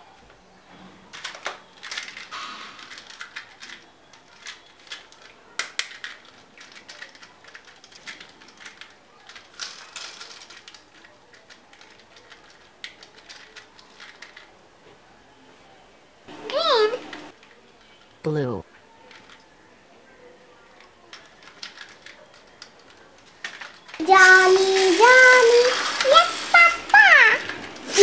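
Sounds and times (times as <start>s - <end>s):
plastic toys clicking and rattling: 0.9s - 14.6s, 16.5s - 19.6s, 20.6s - 28.0s.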